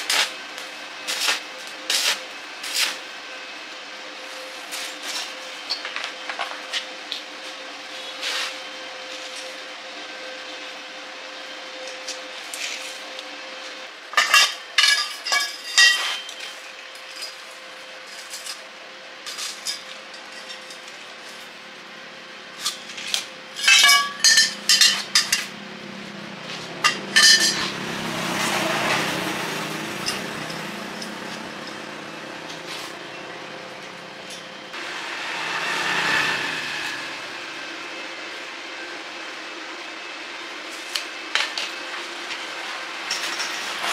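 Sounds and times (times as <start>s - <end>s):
hand tools clinking on metal: 23.6s - 25.5s
soft swell of noise: 34.8s - 38.3s.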